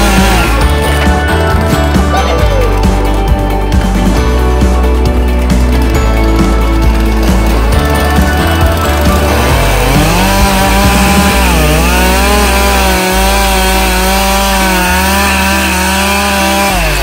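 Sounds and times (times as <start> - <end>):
chainsaw cutting wood: 0.0 - 17.0.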